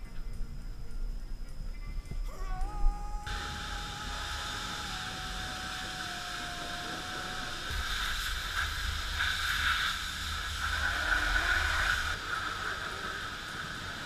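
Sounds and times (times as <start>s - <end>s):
low rumble: 0.0s - 13.9s
pressure washer spraying water: 3.3s - 14.0s.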